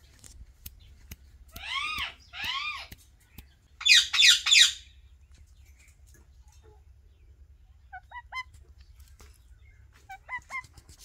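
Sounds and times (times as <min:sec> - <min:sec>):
parakeets whistled calls: 0:03.8 - 0:04.9.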